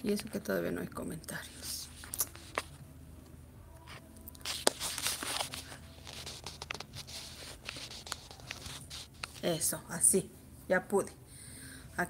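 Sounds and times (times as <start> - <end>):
cloth rustling: 4.4 - 9.5.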